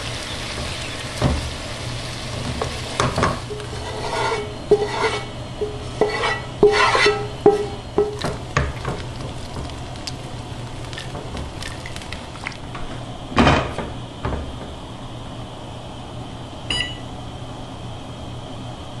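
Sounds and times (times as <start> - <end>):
wooden spoon scraping pot: 2.6 - 10.2
pot lid clanking: 3.0 - 9.0
electronic beep: 16.7 - 17.1.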